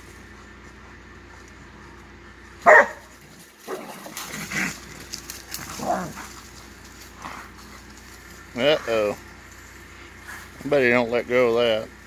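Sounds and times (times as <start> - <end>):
dog barking: 2.6 - 3.1.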